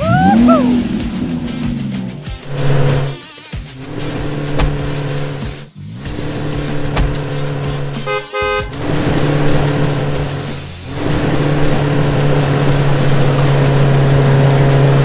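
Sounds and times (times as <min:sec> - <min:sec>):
truck engine running: 0:00.0 - 0:15.0
short horn toots: 0:08.0 - 0:08.9.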